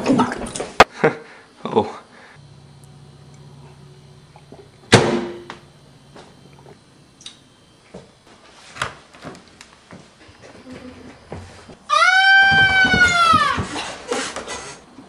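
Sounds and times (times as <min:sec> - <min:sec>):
low hum: 0:02.2 - 0:08.3
loud bang with ringing: 0:04.8 - 0:05.7.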